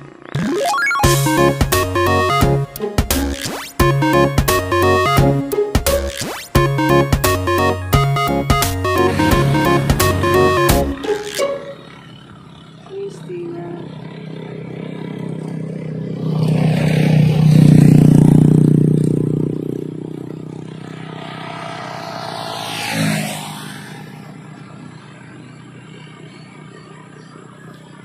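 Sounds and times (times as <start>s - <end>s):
motorcycle engine passing: 0.0s - 3.8s, 8.5s - 28.0s
car whooshing past: 20.6s - 25.2s.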